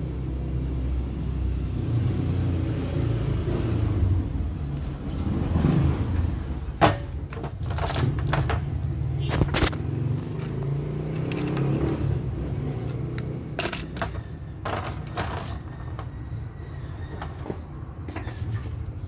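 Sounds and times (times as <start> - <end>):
plastic syringes and vials clattering: 7.0 - 9.8, 13.6 - 16.1.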